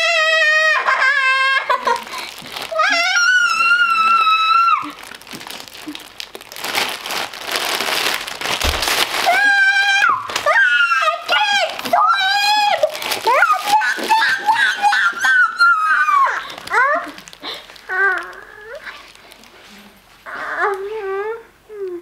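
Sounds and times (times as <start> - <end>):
girl whining cries: 0.0 - 2.1, 2.7 - 5.0, 9.2 - 18.8
plastic packaging crinkling: 1.6 - 20.9.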